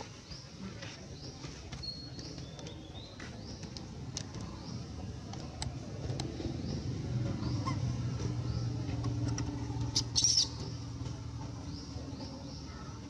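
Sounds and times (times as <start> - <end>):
low steady hum: 3.6 - 13.0
high rising bird chirps: 9.9 - 10.6.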